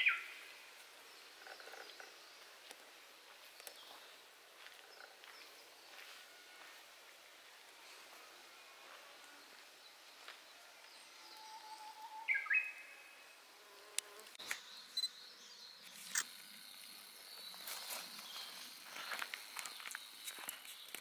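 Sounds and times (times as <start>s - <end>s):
bird chirps: 0.0s - 0.4s, 10.9s - 13.4s, 14.4s - 16.4s
high-pitched insect buzz: 11.0s - 20.9s.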